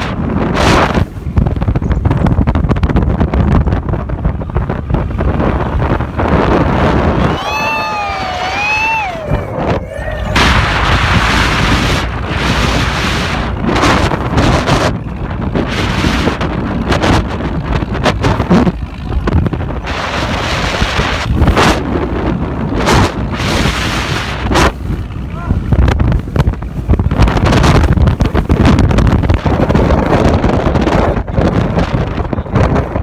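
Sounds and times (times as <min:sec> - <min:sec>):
wind buffeting microphone: 0:00.0 - 0:33.0
person yelling: 0:07.2 - 0:11.0.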